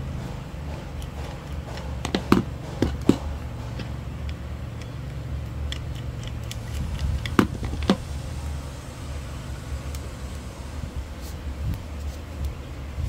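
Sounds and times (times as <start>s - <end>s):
steady low hum: 0.0s - 13.0s
screwdriver clicking on plastic: 3.8s - 8.0s.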